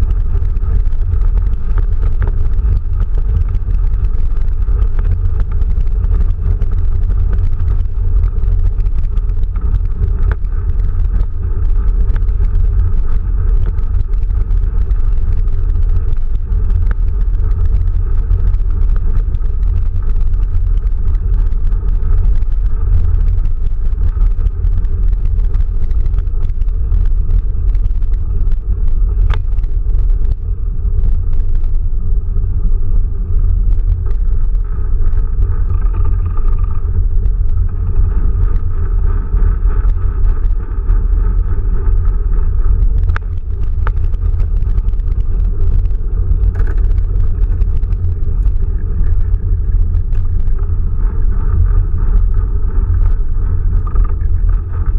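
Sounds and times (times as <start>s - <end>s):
tyre road noise rumble: 0.0s - 54.9s
small clicks: 33.7s - 50.7s.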